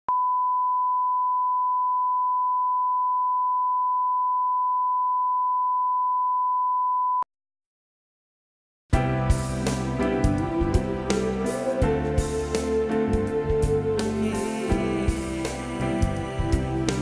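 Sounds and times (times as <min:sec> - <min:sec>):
steady test tone beep: 0:00.1 - 0:07.2.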